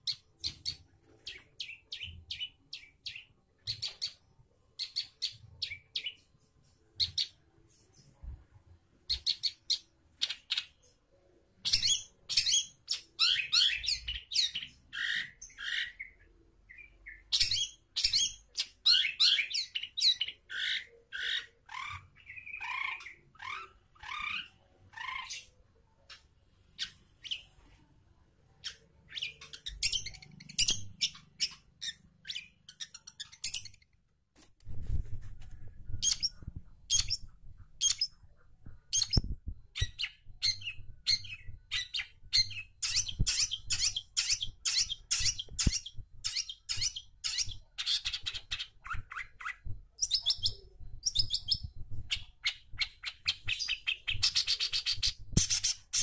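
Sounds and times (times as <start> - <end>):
bird chattering and squawking: 17.1 - 27.5.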